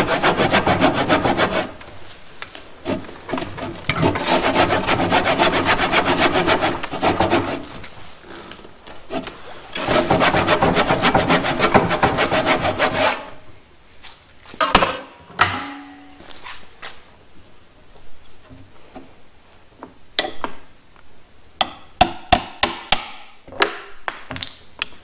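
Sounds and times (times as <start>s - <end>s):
hand tool cutting wood: 0.0s - 1.9s, 2.8s - 13.4s.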